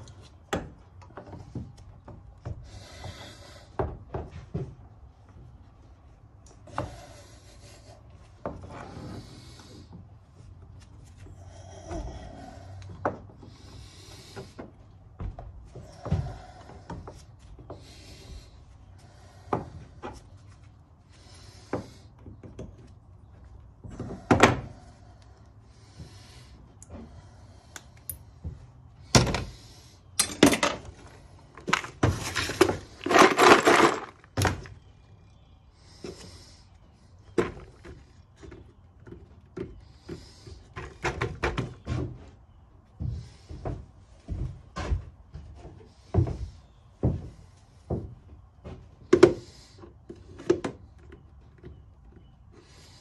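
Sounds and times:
metal parts clattering and scraping: 30.2s - 34.7s.

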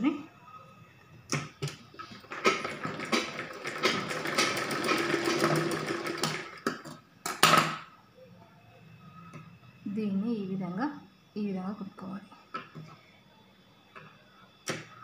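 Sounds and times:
sewing machine clatter: 2.0s - 6.9s.

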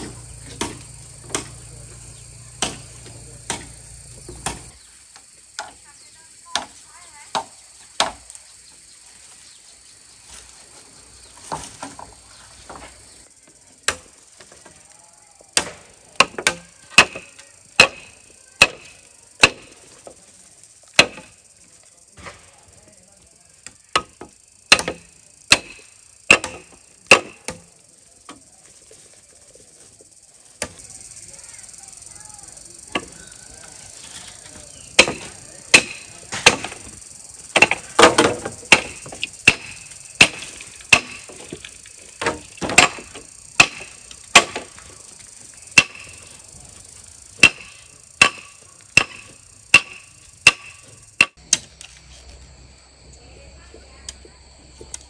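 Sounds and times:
chopping strikes on wood: 0.0s - 1.6s, 2.6s - 3.7s, 4.3s - 4.7s, 7.3s - 8.3s, 13.9s - 14.1s, 15.6s - 20.2s, 21.0s - 21.4s, 23.6s - 27.7s, 30.6s - 30.8s, 34.9s - 44.8s, 45.7s - 46.2s, 47.4s - 51.7s
insects humming: 0.0s - 55.0s.

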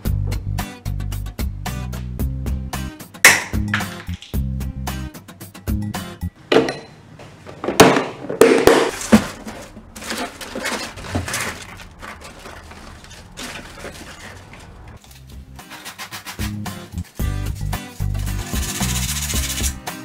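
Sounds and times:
scraping: 8.4s - 16.6s
sandpaper and cardboard rustling: 8.9s - 19.8s.

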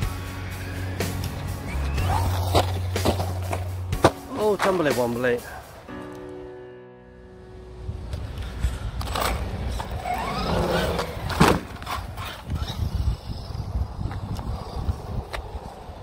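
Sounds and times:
tyre and ground rumble: 0.1s - 5.2s, 8.0s - 16.0s
electric motor whining: 9.8s - 15.9s.

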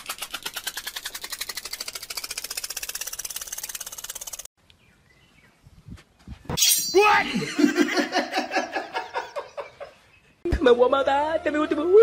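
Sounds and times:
rapid clicking: 0.0s - 4.5s.

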